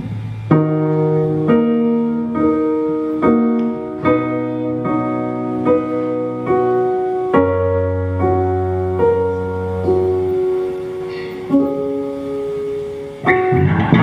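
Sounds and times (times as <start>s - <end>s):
low bass notes: 0.0s - 1.6s, 13.3s - 14.0s
electric keyboard piano chords: 0.0s - 14.0s.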